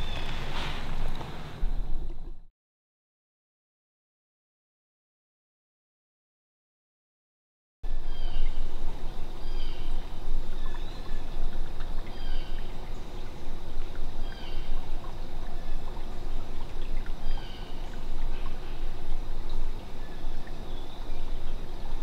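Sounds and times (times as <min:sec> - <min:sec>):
stream trickling: 0:00.0 - 0:02.5, 0:07.9 - 0:22.0.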